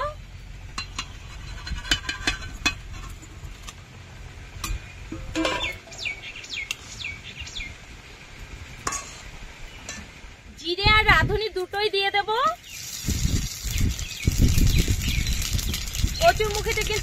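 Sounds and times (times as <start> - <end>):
utensil clinking against cooking pot: 0.7 - 3.2.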